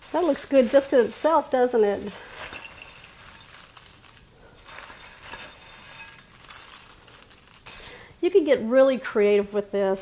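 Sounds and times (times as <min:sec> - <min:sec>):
snack mix rustling in a bowl: 0:00.0 - 0:08.0
light clicks of falling pieces: 0:02.3 - 0:08.0.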